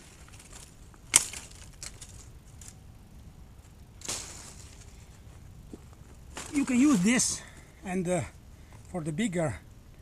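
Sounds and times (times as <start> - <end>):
soft rustling: 0.0 - 2.8, 3.6 - 7.8.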